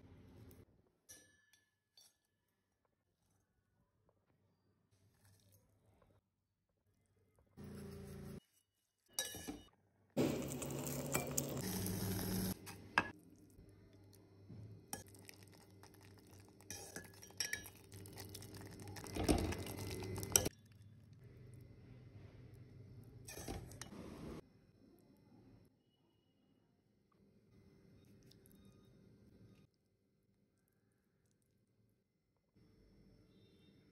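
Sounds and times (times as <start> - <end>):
metal ladle scraping a pot: 16.7 - 20.5, 23.3 - 24.0.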